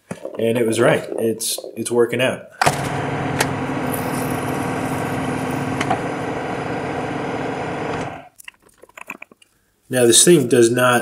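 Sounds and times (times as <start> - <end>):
milling machine hum: 2.7 - 8.3.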